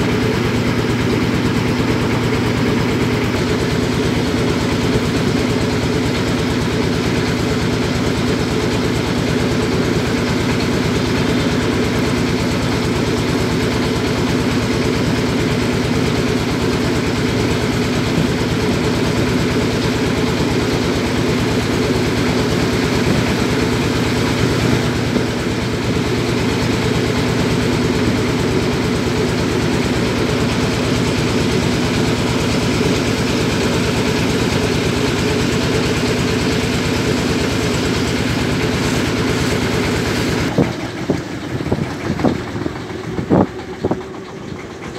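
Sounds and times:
boat engine droning: 0.0 - 44.9.

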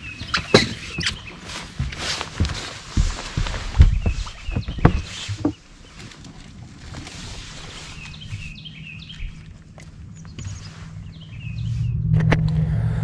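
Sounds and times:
songbirds chirping: 0.0 - 12.1
low steady hum: 6.2 - 13.0.

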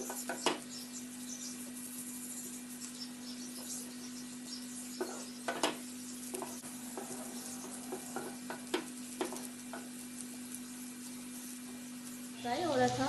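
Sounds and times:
onions sizzling in oil: 0.0 - 13.0
spatula scraping a pan: 4.7 - 12.4.

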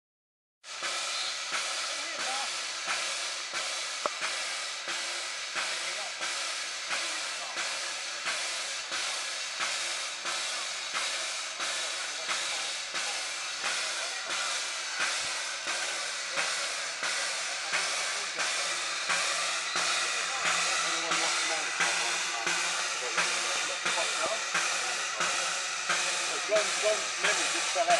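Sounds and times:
steam locomotive hissing: 0.6 - 27.9.

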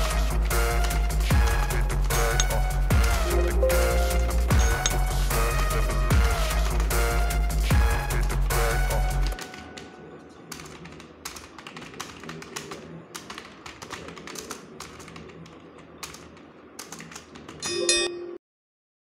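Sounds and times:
background music: 0.0 - 10.3.

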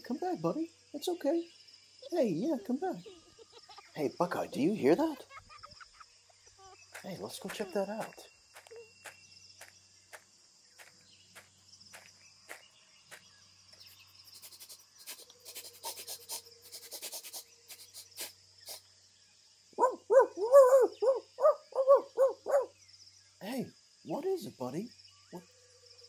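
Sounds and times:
crickets chirring: 0.0 - 26.0
puppy yapping: 19.8 - 22.7.

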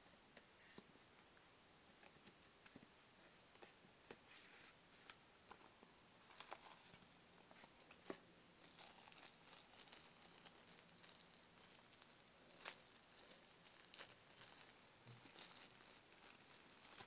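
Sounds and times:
cardboard and plastic rustling: 4.2 - 17.0.

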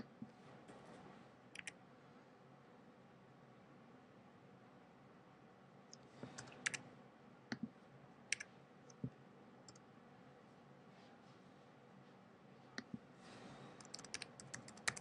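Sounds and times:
keyboard and mouse clicks: 1.6 - 1.8, 13.8 - 15.0.

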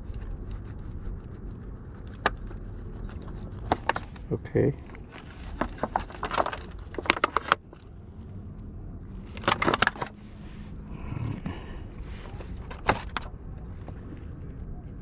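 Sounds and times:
steady low rumble: 0.0 - 15.0
plastic tray crackling and clicking: 5.5 - 7.8, 9.3 - 10.2.

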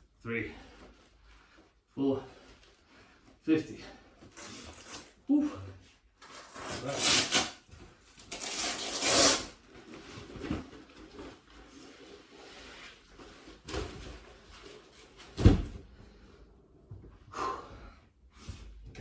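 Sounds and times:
heavy thump of vest landing: 15.4 - 15.8.

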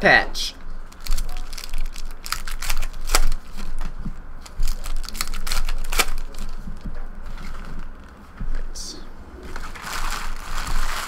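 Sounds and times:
foil wrappers crinkling: 0.9 - 6.6, 9.5 - 11.0.

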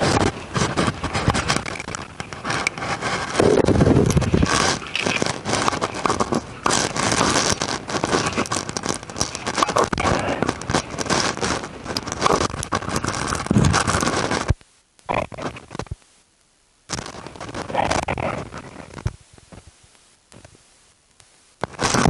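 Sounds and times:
digging in soil and rubble: 0.0 - 15.5.

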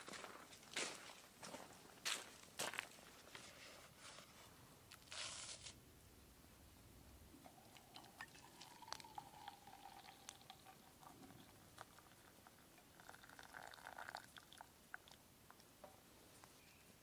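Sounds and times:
water pouring into kettle: 7.4 - 14.7
small drips and clicks: 7.4 - 15.7.

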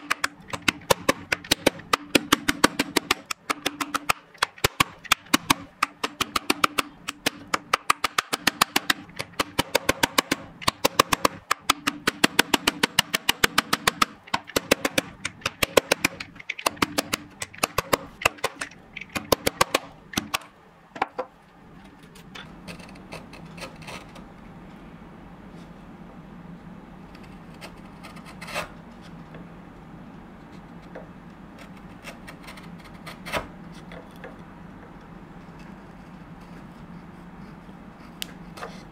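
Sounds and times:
chisel tapping into wood: 0.0 - 21.3
chisel scraping wood: 22.0 - 24.2, 27.1 - 28.8, 31.6 - 34.2.

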